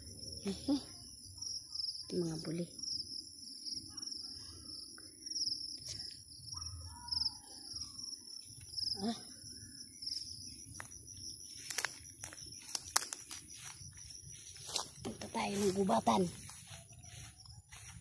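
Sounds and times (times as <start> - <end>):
crickets trilling: 0.0 - 18.0
insects humming: 0.0 - 18.0
footsteps through grass: 10.2 - 18.0.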